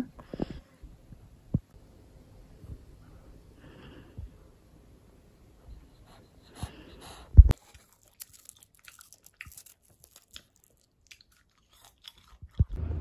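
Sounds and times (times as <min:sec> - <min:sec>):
dried seaweed crinkling and crackling: 0:07.5 - 0:12.6
loud low thump: 0:12.8 - 0:13.0.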